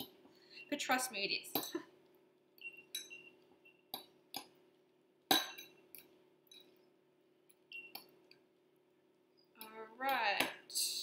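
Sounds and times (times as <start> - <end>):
fork clinking on ceramic bowl: 2.7 - 3.3.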